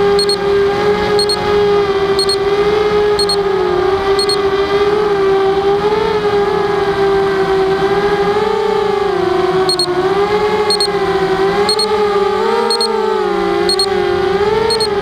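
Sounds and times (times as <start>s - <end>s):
short high double beep: 1.2s - 1.4s, 2.2s - 2.4s, 10.7s - 10.9s, 11.7s - 11.9s, 12.7s - 12.9s, 14.7s - 15.0s.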